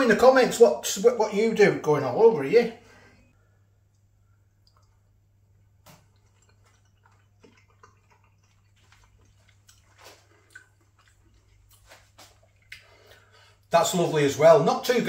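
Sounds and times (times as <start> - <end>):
person chewing: 4.5 - 13.7.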